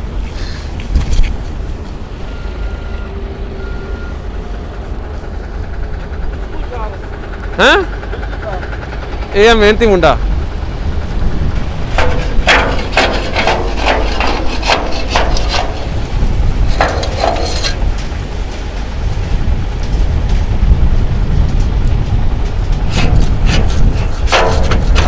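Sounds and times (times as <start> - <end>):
truck engine rumble: 0.0 - 25.0
shovel scraping and knocking asphalt: 12.0 - 18.0, 22.8 - 25.0.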